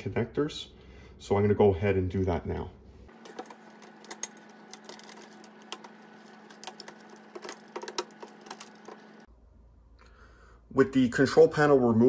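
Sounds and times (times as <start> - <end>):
plastic connectors clicking and rattling: 3.2 - 9.2.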